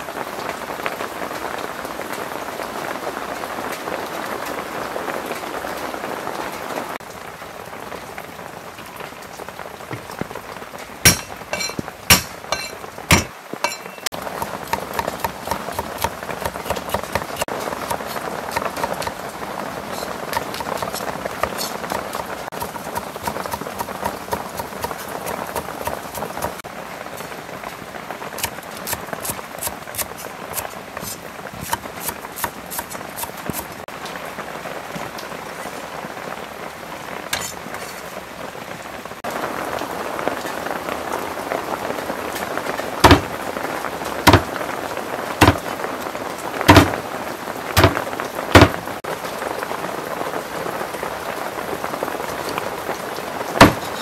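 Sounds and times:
heavy rain: 0.0 - 54.0
cleaver chopping fish: 11.1 - 19.2, 20.0 - 26.6, 31.0 - 33.7, 43.0 - 43.3, 44.3 - 44.5, 45.4 - 45.6, 46.7 - 47.0, 47.8 - 48.0, 48.6 - 48.8, 53.6 - 54.0
knife tapping on chopping board: 47.8 - 48.0.

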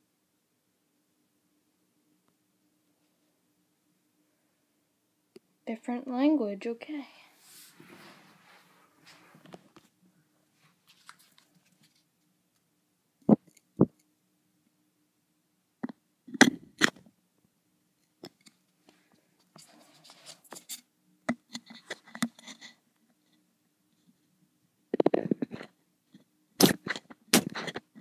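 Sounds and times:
crackly rubbing and tapping: 9.1 - 9.9, 10.6 - 12.3, 18.0 - 18.6, 19.4 - 23.4, 24.9 - 28.0.

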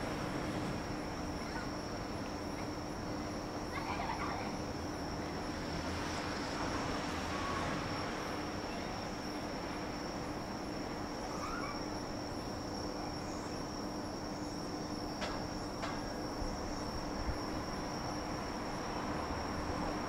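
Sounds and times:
distant town noise: 0.0 - 20.0
high-pitched insect chirr: 7.1 - 20.0.

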